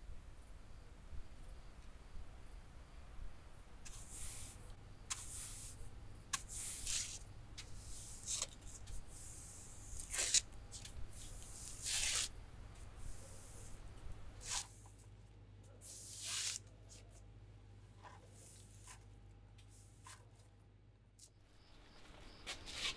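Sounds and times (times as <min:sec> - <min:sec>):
low steady hum: 0:00.0 - 0:22.4
scraping swishes across pavement: 0:06.4 - 0:12.3, 0:14.4 - 0:15.0, 0:22.0 - 0:22.9.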